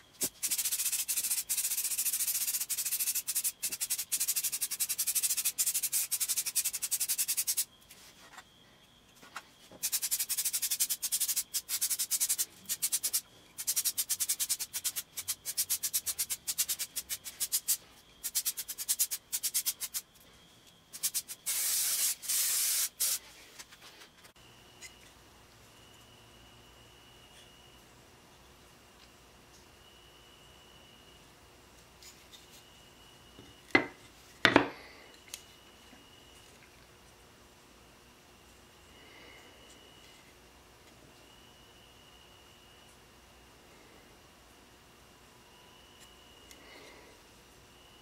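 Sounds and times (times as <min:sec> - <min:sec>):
spray paint can hissing: 0:00.2 - 0:07.7, 0:09.8 - 0:20.1, 0:20.9 - 0:23.2.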